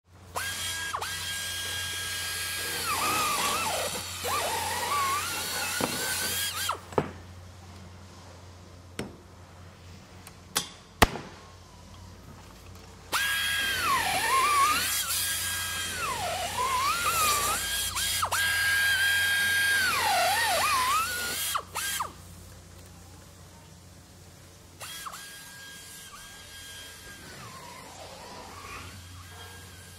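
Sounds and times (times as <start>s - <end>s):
power drill whining: 0.3s - 6.9s, 13.1s - 22.2s, 24.8s - 29.9s.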